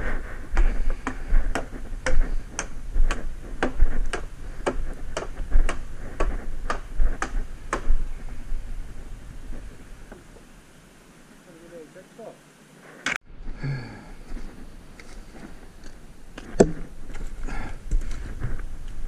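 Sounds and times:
chopping wood: 0.6 - 8.0, 16.4 - 16.9.

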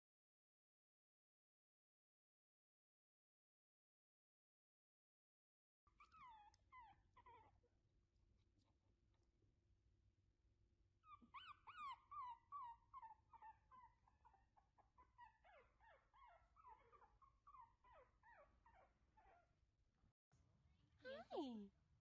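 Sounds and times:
puppy whimpering: 5.9 - 7.8, 11.0 - 19.5.

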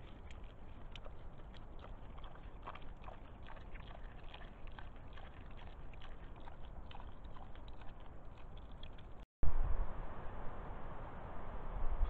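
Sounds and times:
boar crunching and chewing: 0.0 - 9.3.

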